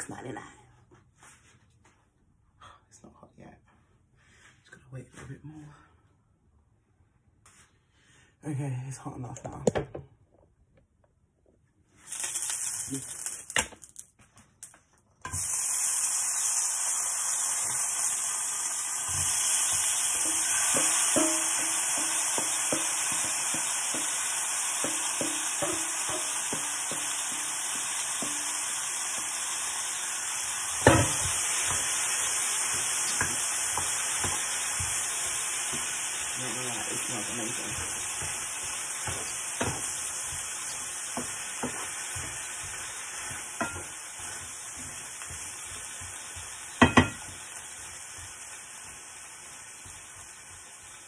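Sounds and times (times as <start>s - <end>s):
shrimp sizzling in frying pan: 12.0s - 14.0s, 15.2s - 51.0s
wooden spoon knocking pan: 19.1s - 28.6s, 30.8s - 36.1s, 36.8s - 49.0s.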